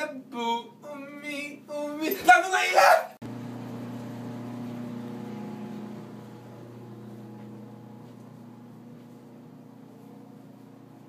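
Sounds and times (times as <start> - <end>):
low machine hum: 3.2 - 11.0.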